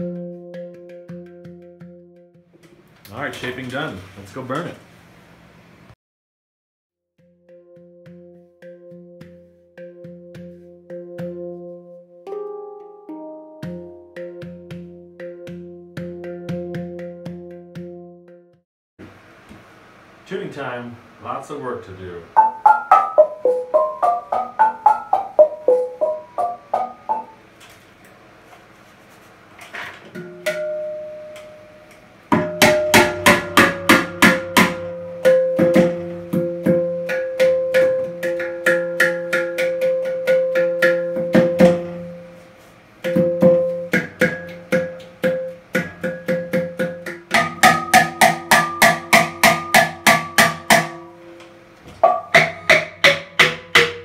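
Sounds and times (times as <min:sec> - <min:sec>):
handpan notes struck: 0:00.0 - 0:02.4, 0:07.2 - 0:18.4, 0:22.4 - 0:27.4, 0:30.2 - 0:54.0.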